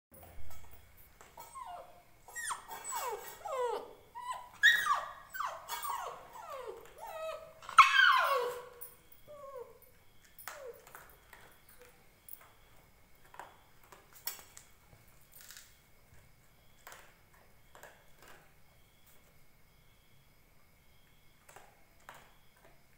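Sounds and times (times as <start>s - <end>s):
puppy whining and yelping: 1.2s - 11.0s.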